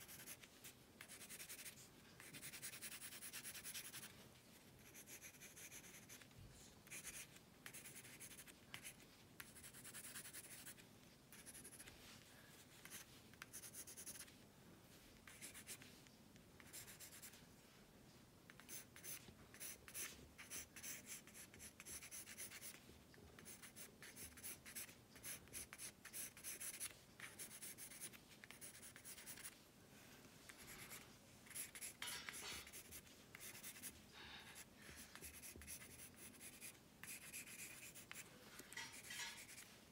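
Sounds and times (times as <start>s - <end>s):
pencil scratching on paper: 0.0s - 4.1s, 4.8s - 6.2s, 6.8s - 11.9s, 12.8s - 14.3s, 15.2s - 15.9s, 16.6s - 17.4s, 18.6s - 22.8s, 23.4s - 29.6s, 30.6s - 39.7s.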